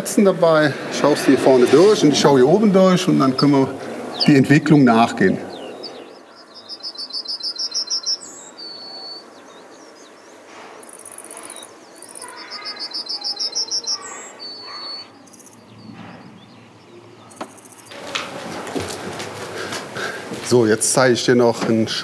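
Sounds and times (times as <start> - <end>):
songbird singing: 0.0 - 18.0
high buzzy chirps: 6.5 - 9.2, 10.8 - 15.9.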